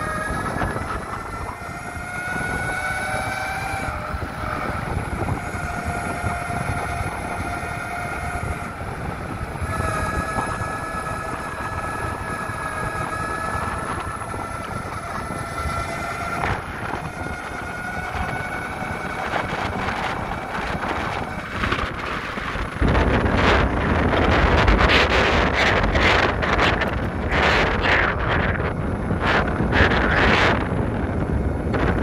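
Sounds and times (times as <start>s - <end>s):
board rolling rumble: 0.0s - 32.0s
electric motors whining: 0.0s - 32.0s.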